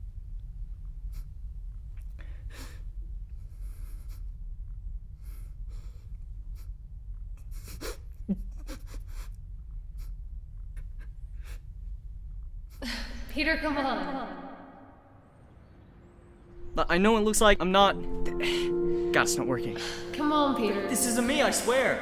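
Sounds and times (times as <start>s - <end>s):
steady low hum: 0.0s - 22.0s
man sniffing and crying: 7.4s - 9.4s.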